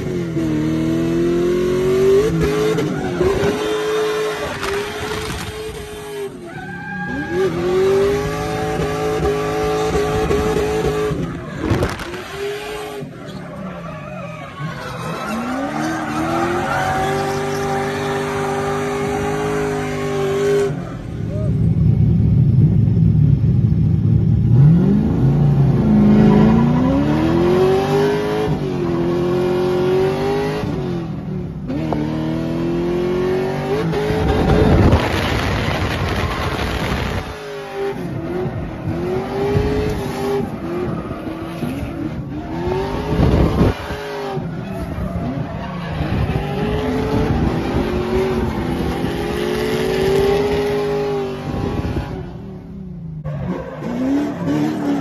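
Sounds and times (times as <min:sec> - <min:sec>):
tyres squealing and skidding: 0:02.2 - 0:09.0, 0:09.6 - 0:21.8, 0:25.9 - 0:28.3, 0:33.7 - 0:51.0, 0:53.2 - 0:55.0
car engine revving hard: 0:31.7 - 0:52.4.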